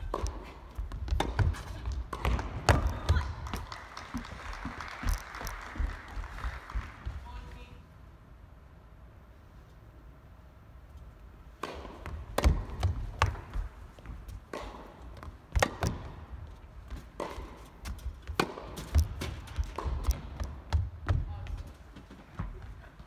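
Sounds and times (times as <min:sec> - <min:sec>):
tennis rackets striking ball: 0:00.0 - 0:03.2, 0:11.5 - 0:16.3, 0:16.9 - 0:21.2
tennis ball bouncing: 0:00.0 - 0:05.2, 0:11.5 - 0:21.3.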